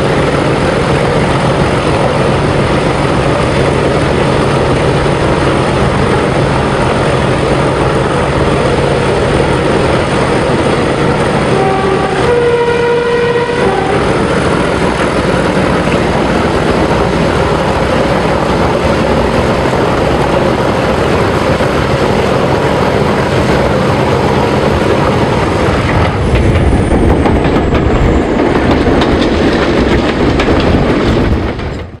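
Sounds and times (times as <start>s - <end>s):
diesel locomotive engine working hard: 0.0s - 32.0s
wheel and rail noise: 0.0s - 32.0s
two-tone train horn: 11.4s - 14.2s.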